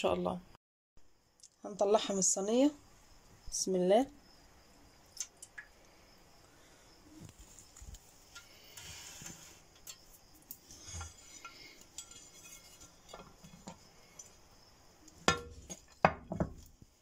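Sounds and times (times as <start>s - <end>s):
mould clattering onto plate: 10.7s - 14.2s, 15.2s - 16.7s.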